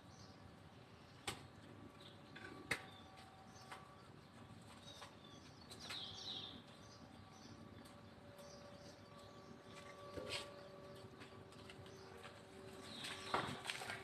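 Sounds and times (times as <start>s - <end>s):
bird chirping: 4.8s - 11.0s.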